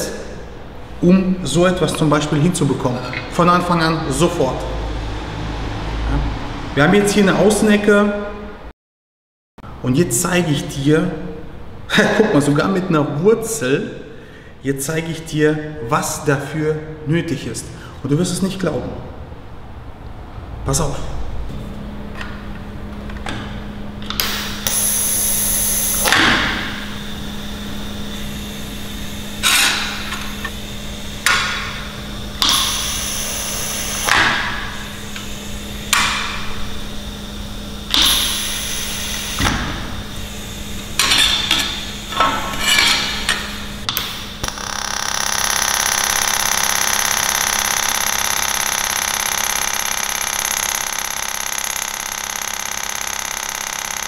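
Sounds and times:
welding arc bursts: 24.2s - 26.9s, 32.4s - 36.4s, 37.9s - 42.1s, 44.4s - 54.0s
welding arc hissing: 24.2s - 36.4s, 37.9s - 42.2s, 44.2s - 54.0s
low hum: 44.4s - 54.0s.

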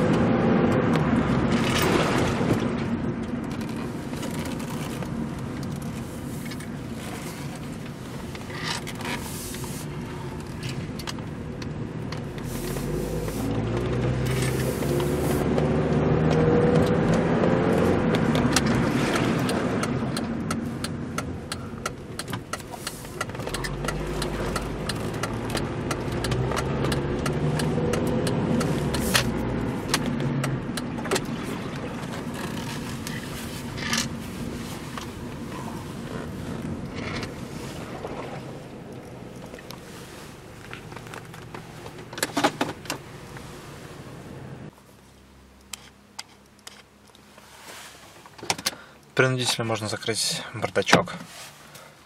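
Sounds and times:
road and tyre noise: 0.0s - 52.0s
car engine accelerating: 9.8s - 47.6s.

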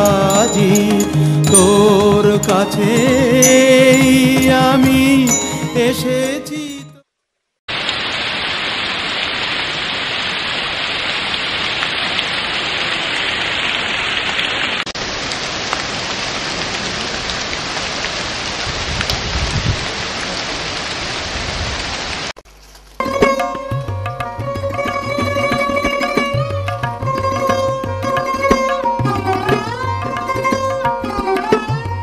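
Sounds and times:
steady rain falling: 7.7s - 23.2s.

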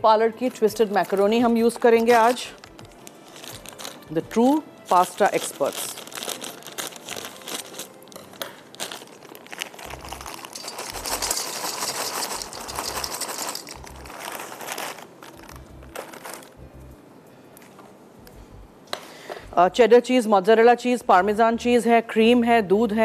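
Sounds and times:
plastic packet of pasta crinkling: 1.8s - 4.1s, 4.9s - 16.6s.

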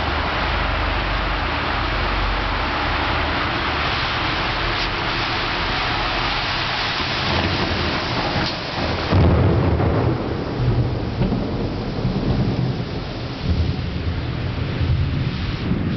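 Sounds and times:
heavy rain hissing: 0.0s - 15.9s
thunder rumbling: 0.0s - 15.9s.

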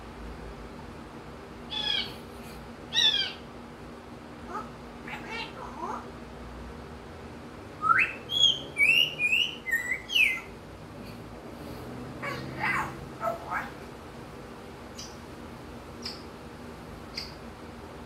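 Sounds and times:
soft low parrot calls: 1.7s - 3.5s, 4.4s - 6.1s, 12.2s - 13.8s
parrot whistling: 7.8s - 10.5s.

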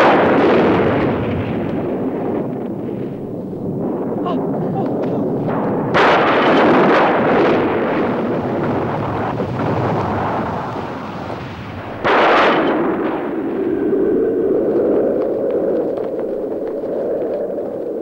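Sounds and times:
explosion bang with rumble: 0.0s - 13.9s.

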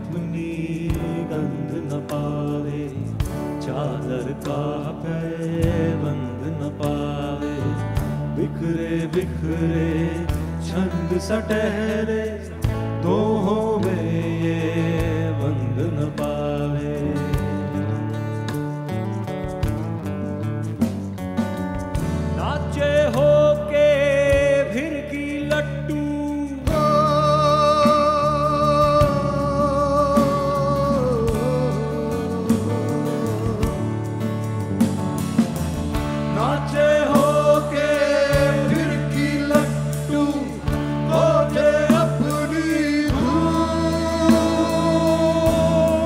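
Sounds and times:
man singing into microphone: 0.0s - 18.5s, 22.3s - 34.4s, 36.3s - 46.0s
guitars: 0.0s - 46.0s
low bass notes: 0.0s - 46.0s
rock band playing slow song: 0.0s - 46.0s
drum strikes: 19.4s - 23.6s, 26.7s - 46.0s.

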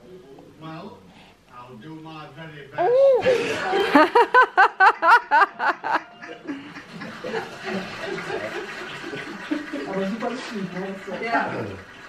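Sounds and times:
person laughing heartily: 3.2s - 8.2s
mixed laughter: 3.2s - 10.4s.

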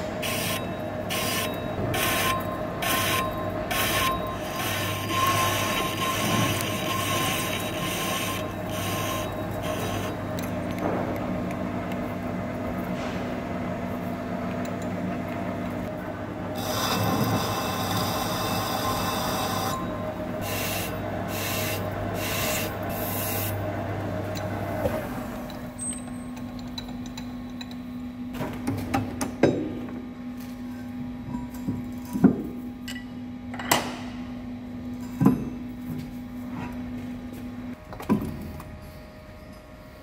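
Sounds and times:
lathe motor humming: 0.2s - 10.6s, 15.9s - 25.3s.

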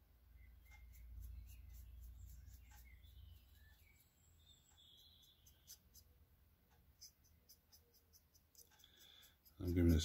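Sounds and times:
soft high ticks and scratches: 0.4s - 10.0s.

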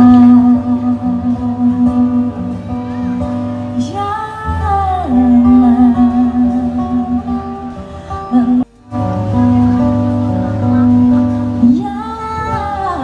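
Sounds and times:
woman singing a ballad: 0.0s - 2.6s, 3.8s - 8.7s, 11.0s - 13.0s
acoustic guitar: 0.0s - 13.0s.

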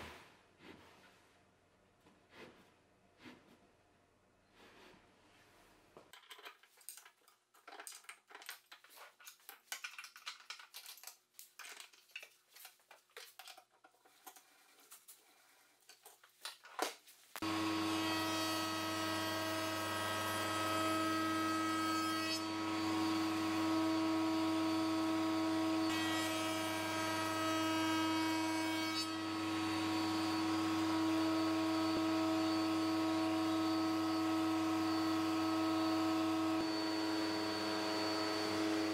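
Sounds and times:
router whining: 29.2s - 38.9s.

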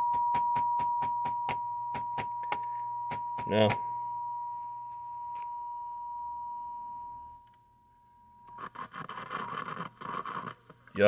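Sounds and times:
high test tone from speaker: 0.0s - 9.8s
crackling static: 8.4s - 11.0s.

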